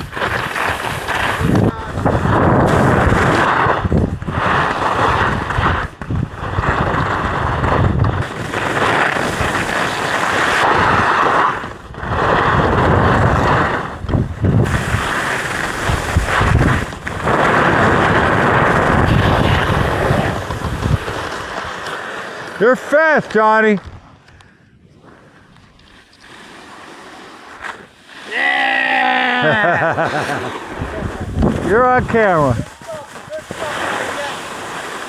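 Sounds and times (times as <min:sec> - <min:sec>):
skis scraping over snow: 0:00.0 - 0:24.3, 0:24.9 - 0:35.0
wind buffeting microphone: 0:00.9 - 0:09.6, 0:10.6 - 0:21.6, 0:30.6 - 0:33.7.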